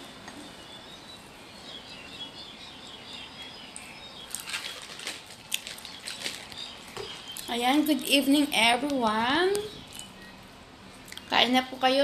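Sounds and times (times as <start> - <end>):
plastic jar rattling: 4.3 - 6.7
faint high chirping: 9.4 - 10.6.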